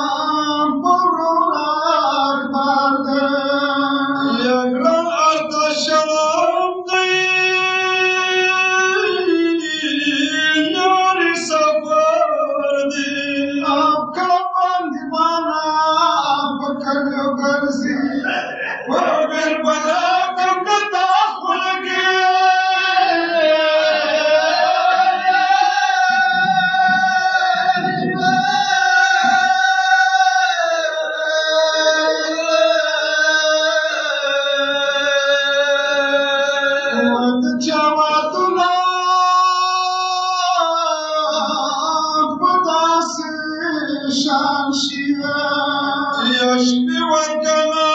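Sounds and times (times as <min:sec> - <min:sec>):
man singing a lament: 0:00.0 - 0:47.9.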